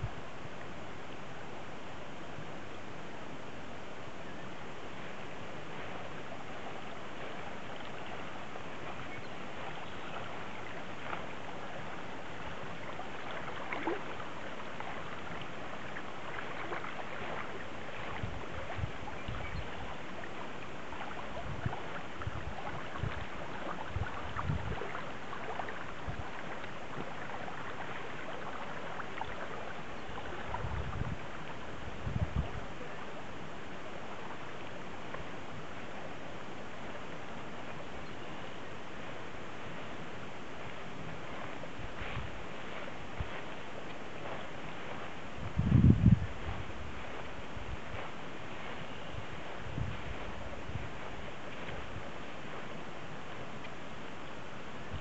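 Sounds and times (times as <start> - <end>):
creek flowing over gravel: 0.0 - 55.0
wind buffeting microphone: 5.7 - 33.0, 39.0 - 53.6.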